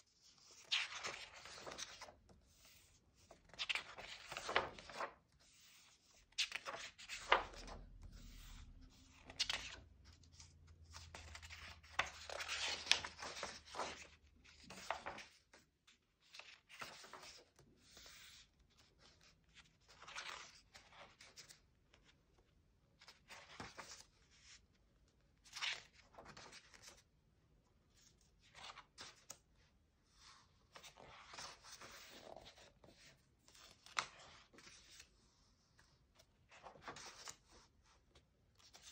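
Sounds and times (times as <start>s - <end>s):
paper pages turning: 0.3s - 15.5s, 16.2s - 17.4s, 30.2s - 38.0s.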